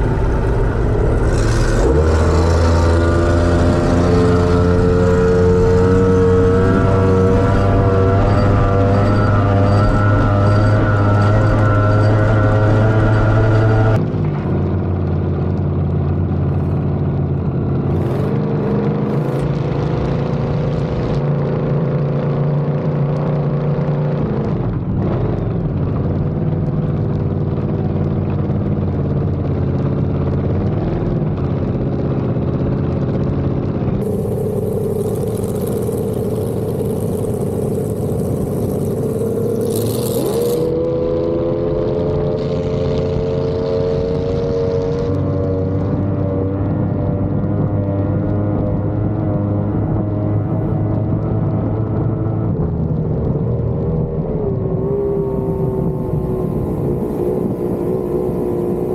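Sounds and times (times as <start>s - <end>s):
boat engines running hard: 34.0s - 40.7s.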